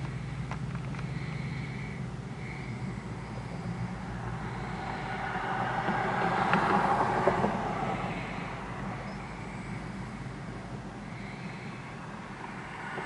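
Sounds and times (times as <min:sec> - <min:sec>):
diesel locomotive engine running: 0:00.0 - 0:13.0
wheels clicking on rails: 0:04.5 - 0:09.5.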